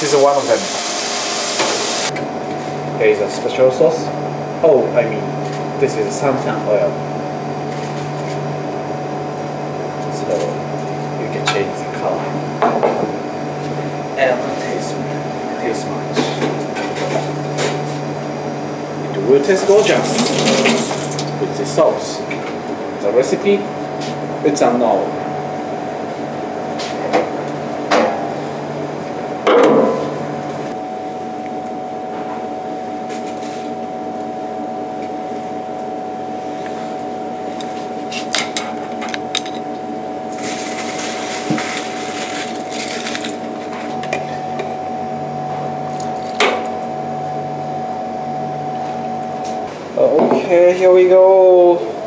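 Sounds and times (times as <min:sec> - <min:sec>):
kitchen equipment humming: 0:00.0 - 0:52.0
hiss: 0:00.5 - 0:02.1.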